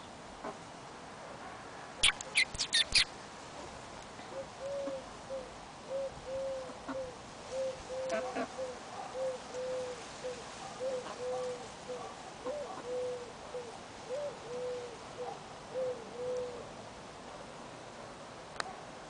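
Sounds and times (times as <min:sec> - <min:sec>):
dove cooing: 0:04.3 - 0:16.7.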